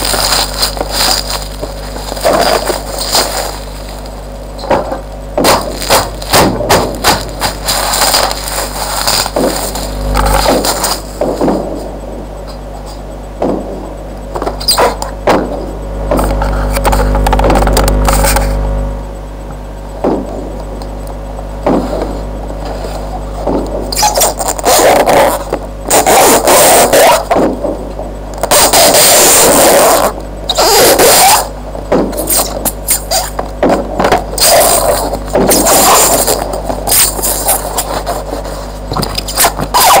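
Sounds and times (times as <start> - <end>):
low electrical hum: 0.0 - 40.0
knocks on box: 4.7 - 7.5, 20.0 - 20.4.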